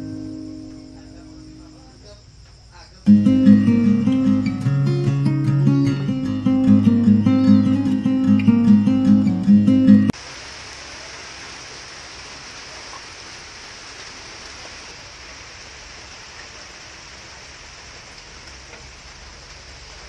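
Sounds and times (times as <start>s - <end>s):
mussels sizzling in a pan: 10.1s - 20.0s
wood fire crackles: 10.2s - 20.0s.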